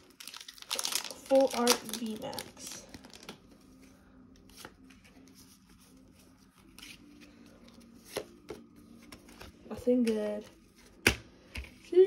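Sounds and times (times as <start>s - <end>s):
trading cards rustling: 0.0s - 12.0s.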